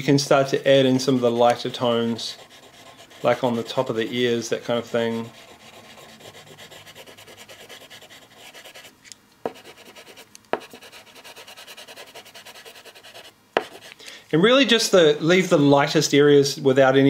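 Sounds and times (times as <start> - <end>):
chocolate scratching on paper: 0.0 - 8.9, 9.5 - 14.0.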